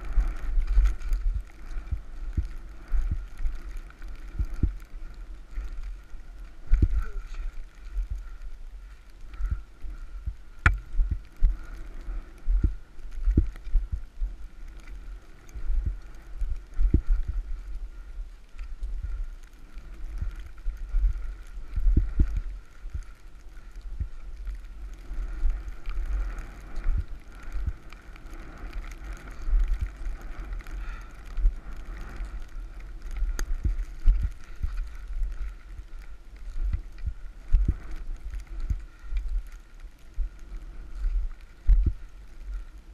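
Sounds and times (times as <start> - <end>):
snowboard rumbling through powder: 0.0 - 18.2.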